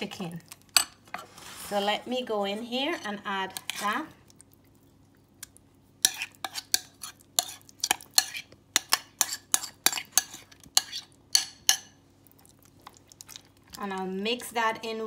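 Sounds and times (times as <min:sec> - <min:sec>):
spoon scraping and clinking bowl: 0:06.0 - 0:11.9.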